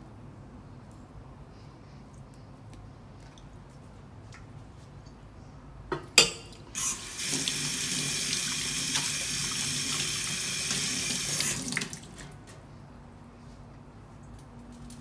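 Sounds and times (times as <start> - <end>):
tap water running into sink: 6.8 - 12.2.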